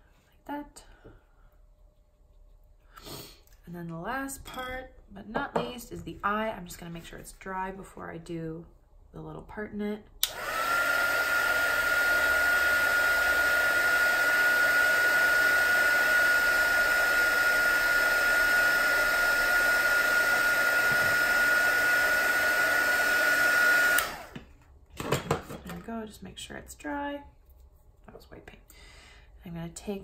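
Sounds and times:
heat tool blowing air: 10.2 - 24.4.

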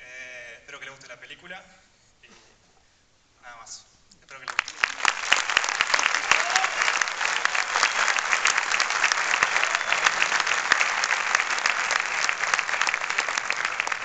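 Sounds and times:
audience applauding: 4.3 - 14.0.

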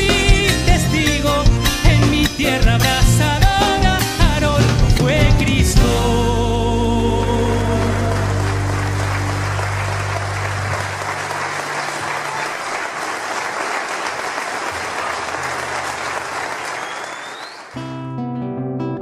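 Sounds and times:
audience applause: 7.2 - 17.8.

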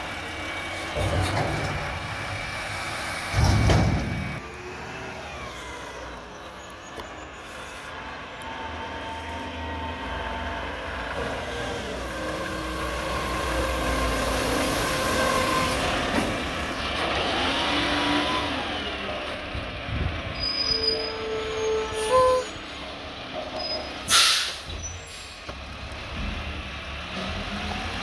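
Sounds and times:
garbage truck driving past: 8.0 - 19.8.

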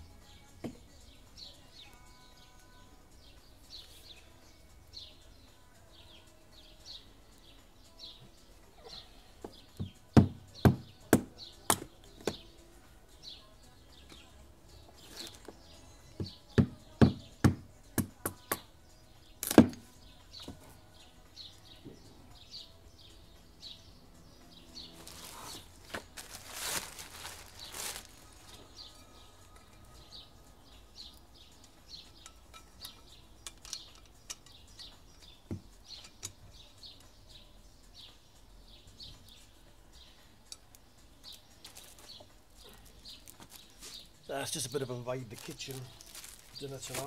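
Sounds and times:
bird chirping: 0.0 - 47.0
plastic bag rustling: 25.0 - 28.8, 41.6 - 44.0, 45.2 - 47.0.

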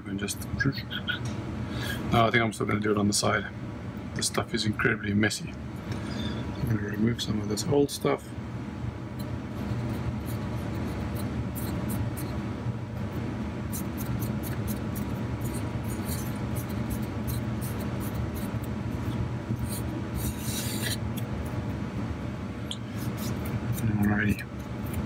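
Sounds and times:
steady low hum: 0.0 - 25.0
fingers rubbing off adhesive: 13.7 - 21.6, 22.9 - 25.0.

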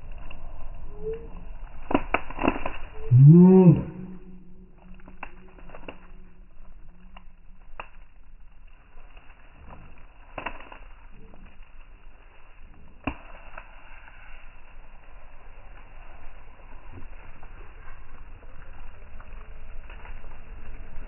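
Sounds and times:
dog chewing leaves: 1.7 - 3.0
bamboo snapping: 1.8 - 3.1, 9.7 - 10.9.

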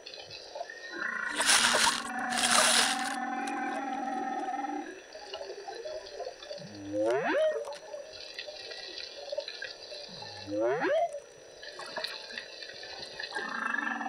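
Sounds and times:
faint underwater crackle: 0.0 - 14.0
whale calls underwater: 3.2 - 8.1, 10.1 - 11.4, 13.3 - 14.0.

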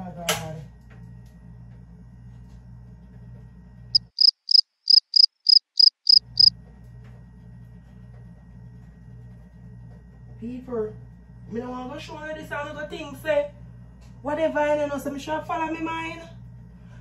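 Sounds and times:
cricket chirping: 4.0 - 6.5.

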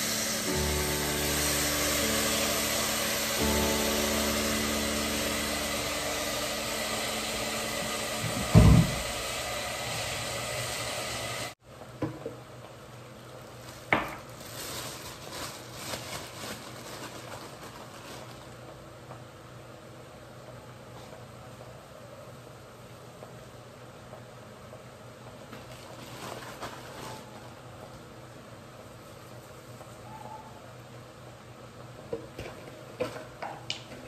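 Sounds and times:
food sizzling in pots: 0.0 - 11.6
loud low thump: 8.2 - 9.2.

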